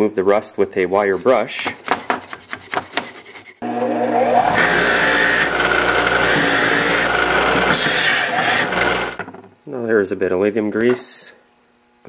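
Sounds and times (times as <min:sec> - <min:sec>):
bench grinder motor hum: 0:03.6 - 0:09.3.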